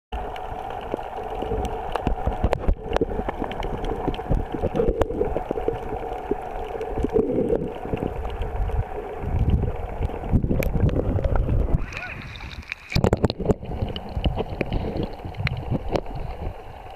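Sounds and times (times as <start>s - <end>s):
steady underwater hum: 0.1s - 16.9s
water sloshing and gurgling: 0.2s - 16.9s.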